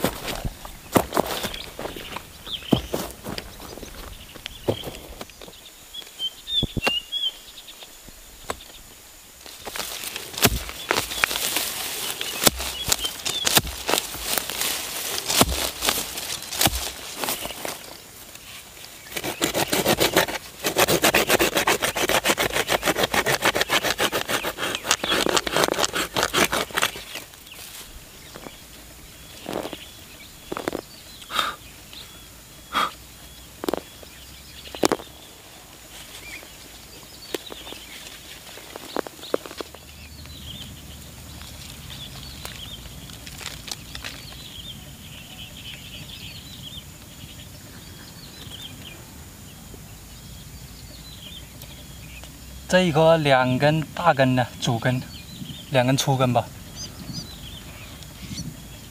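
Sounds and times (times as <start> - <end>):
hoe chopping and scraping soil: 0.0 - 5.6, 9.4 - 28.6, 29.3 - 31.6, 34.7 - 35.2
faint chirping: 0.0 - 20.6, 21.2 - 58.9.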